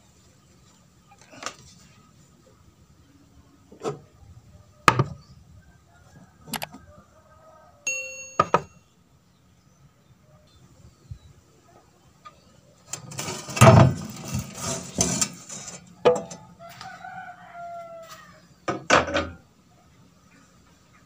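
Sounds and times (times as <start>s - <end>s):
rooster crowing: 5.6s - 8.0s, 16.3s - 18.6s
sheet metal clattering and scraping: 12.9s - 16.4s.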